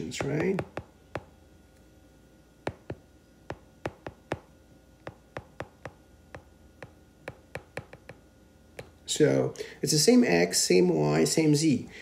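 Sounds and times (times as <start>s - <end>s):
stylus clicking on tablet screen: 2.7s - 8.2s.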